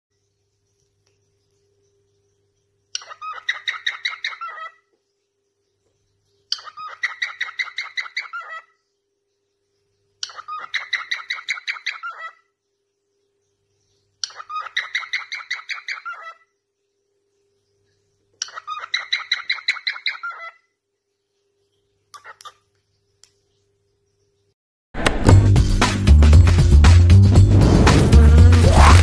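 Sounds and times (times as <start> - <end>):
cockatiel singing: 2.9 - 4.8, 6.5 - 8.8, 10.2 - 12.5, 14.2 - 16.5, 18.4 - 20.7.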